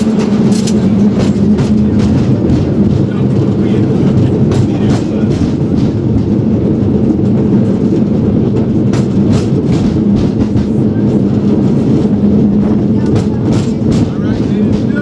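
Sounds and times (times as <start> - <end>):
sharp clacks: 0.0 - 3.2
cable car rumbling on track: 0.0 - 15.0.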